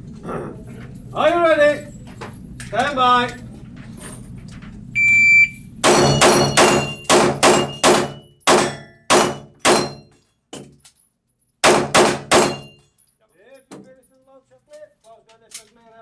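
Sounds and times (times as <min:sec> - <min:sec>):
shot timer beep: 0:05.0 - 0:07.8
pistol shots echoing indoors: 0:05.8 - 0:10.1, 0:11.6 - 0:12.9.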